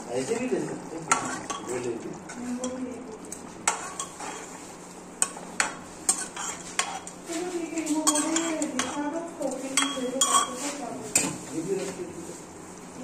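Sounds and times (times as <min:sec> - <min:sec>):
ladle stirring liquid in pot: 0:00.2 - 0:07.3, 0:09.8 - 0:11.5
ladle clinking against pot: 0:09.8 - 0:10.5.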